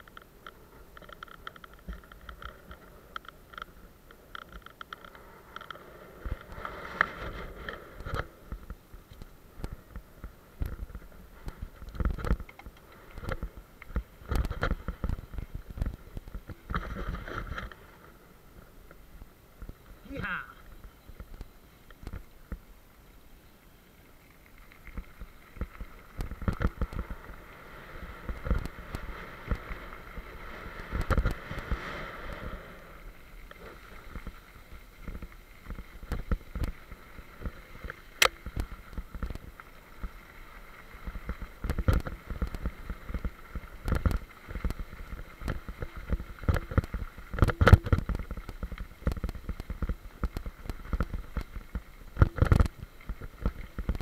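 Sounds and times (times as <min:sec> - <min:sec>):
bike knocking and rattling: 0:00.0 - 0:17.8, 0:24.9 - 0:31.8, 0:33.4 - 0:54.0
bicycle tyres on gravel: 0:00.0 - 0:54.0
wind rumble on microphone: 0:24.8 - 0:54.0.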